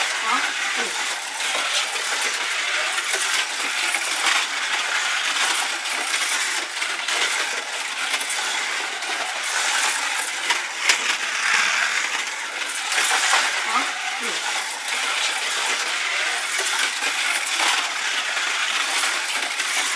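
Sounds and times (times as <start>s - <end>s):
slot cars whirring on track: 0.0s - 19.9s.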